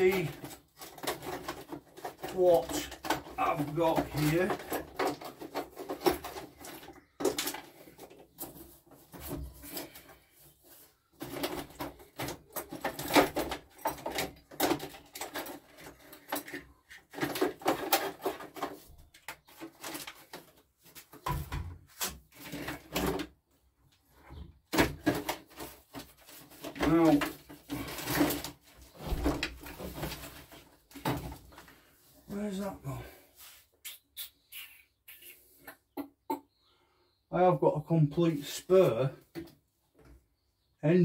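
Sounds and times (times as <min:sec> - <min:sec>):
parts clattering in a box: 0:00.0 - 0:23.4, 0:24.7 - 0:31.8.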